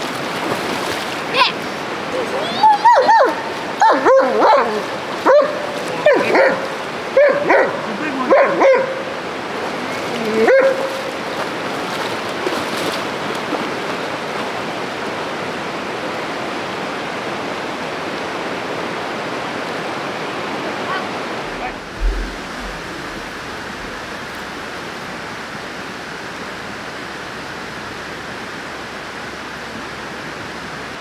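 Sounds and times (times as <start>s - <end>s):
river rushing: 0.0s - 31.0s
dog barking: 2.9s - 9.0s, 10.4s - 11.1s.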